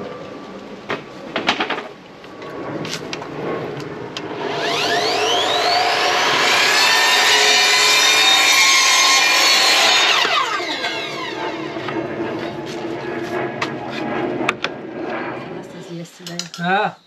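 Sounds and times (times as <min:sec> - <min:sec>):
mitre saw cutting wood: 0:04.3 - 0:12.8.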